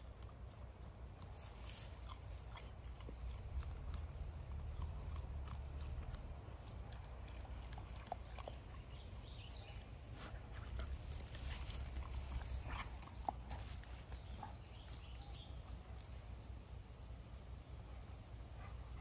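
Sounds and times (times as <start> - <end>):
steady low rumble: 0.0 - 19.0
puppy paws clicking and scuffing: 10.1 - 16.6.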